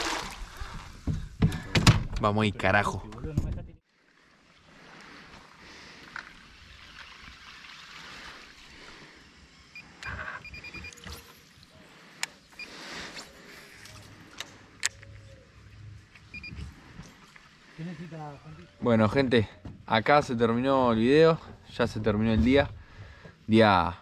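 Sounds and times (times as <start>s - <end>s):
river water lapping: 0.0s - 1.1s, 3.8s - 19.6s.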